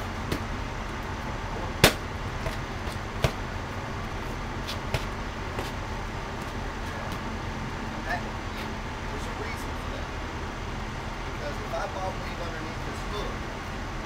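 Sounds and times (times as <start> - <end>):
road traffic hum: 0.0 - 14.0
punches smacking into mitts: 0.3 - 0.5, 1.8 - 3.4, 4.6 - 5.8.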